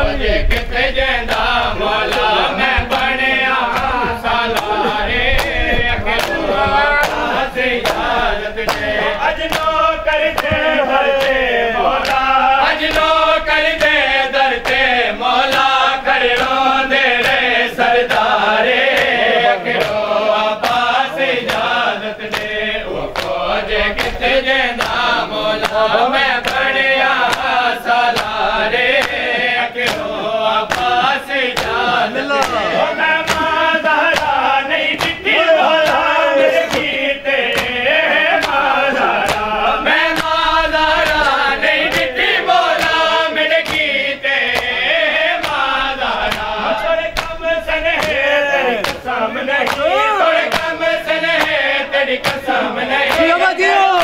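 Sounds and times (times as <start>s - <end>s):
men chanting a lament: 0.0s - 54.0s
hand slaps on chest: 20.6s - 21.7s, 29.8s - 30.1s, 30.7s - 32.6s, 37.5s - 37.8s, 43.6s - 44.0s.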